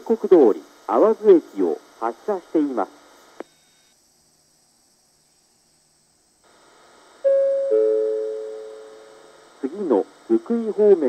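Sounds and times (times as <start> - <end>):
two-tone electronic chime: 7.3 - 8.9.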